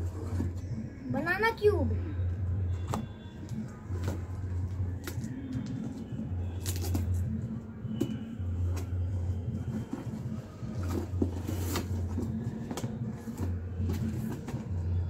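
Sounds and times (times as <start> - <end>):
cardboard boxes knocking and scraping: 7.9 - 15.0.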